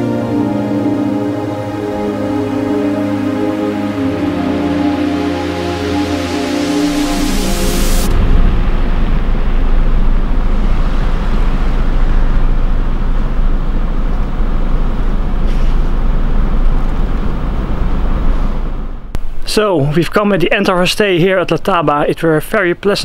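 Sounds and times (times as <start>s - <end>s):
vehicle engine idling: 8.1s - 19.2s.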